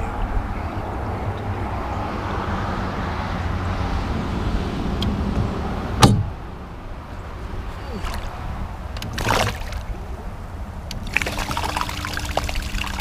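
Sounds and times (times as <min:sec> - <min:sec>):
boat motor humming: 0:07.4 - 0:13.0.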